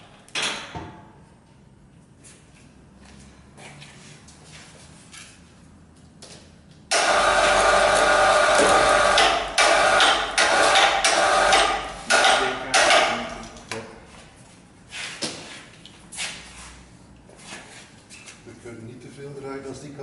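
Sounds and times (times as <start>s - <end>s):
electric chain hoist running: 6.9s - 12.5s.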